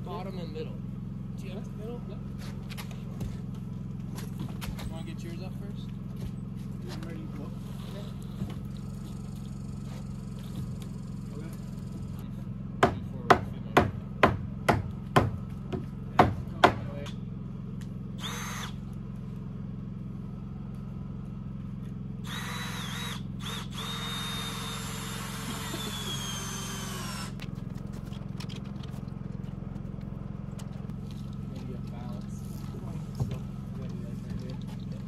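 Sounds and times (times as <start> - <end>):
sharp knocks: 12.8 - 16.9
cordless drill driving screws: 18.2 - 18.8, 22.2 - 27.4.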